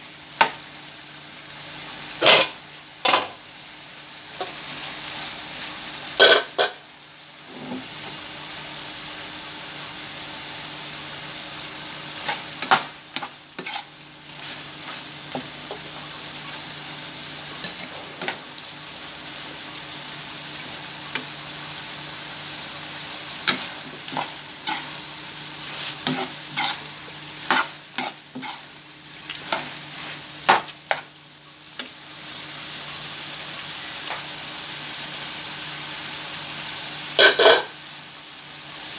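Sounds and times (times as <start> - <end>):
meat sizzling in a frying pan: 0.0 - 38.9
metal spatula scraping pan: 13.2 - 13.9, 23.4 - 25.0, 25.6 - 28.7.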